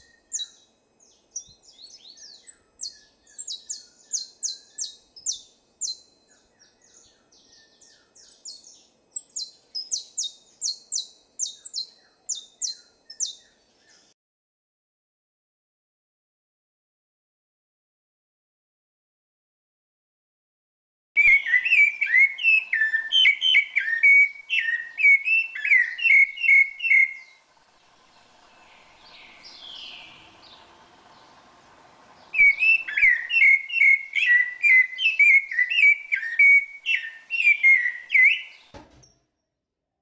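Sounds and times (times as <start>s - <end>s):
thrush singing whistled phrases: 21.2s - 27.4s, 28.1s - 38.7s.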